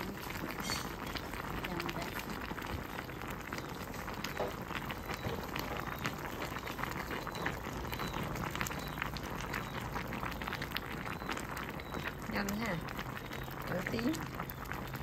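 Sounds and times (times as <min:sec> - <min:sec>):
fish stew bubbling in pot: 0:00.0 - 0:15.0.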